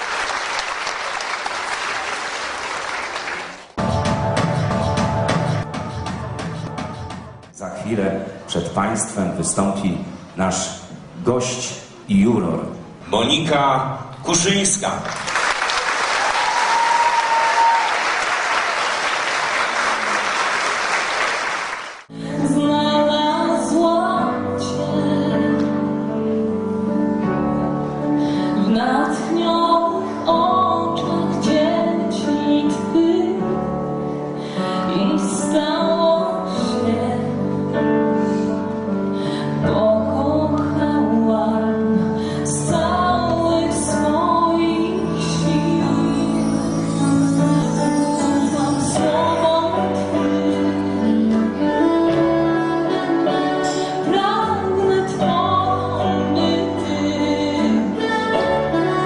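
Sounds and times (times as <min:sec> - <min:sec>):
audience applauding: 0:00.0 - 0:03.8, 0:14.9 - 0:22.1.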